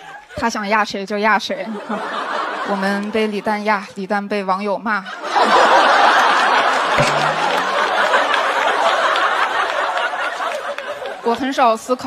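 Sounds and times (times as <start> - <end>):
audience laughing: 1.6 - 3.6, 5.0 - 11.6
audience applauding: 5.8 - 11.5.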